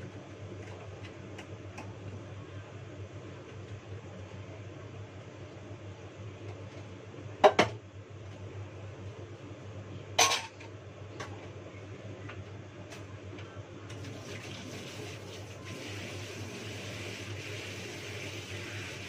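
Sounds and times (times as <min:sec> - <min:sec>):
steady low hum: 0:00.0 - 0:14.0
dishes and pot clattering: 0:10.2 - 0:10.6.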